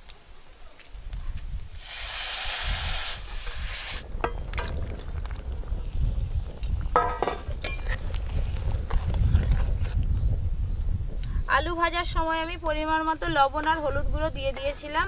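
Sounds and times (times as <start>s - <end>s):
oil sizzling loudly in a wok: 1.5s - 4.6s.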